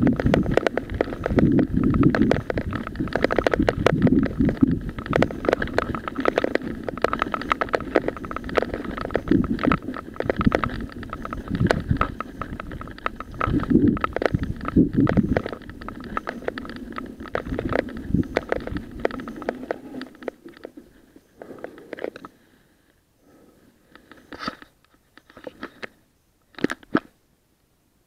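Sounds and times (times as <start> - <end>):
wind buffeting microphone: 0.0 - 20.6
bike rattling over rough track: 0.0 - 22.3.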